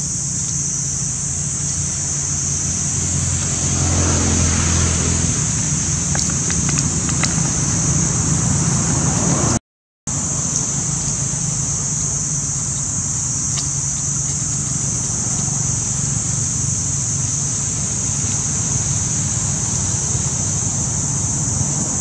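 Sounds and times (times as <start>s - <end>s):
high-pitched hiss: 0.0s - 9.5s, 10.1s - 22.0s
low rumble: 1.2s - 9.6s
dry leaves crackling underfoot: 10.1s - 21.4s.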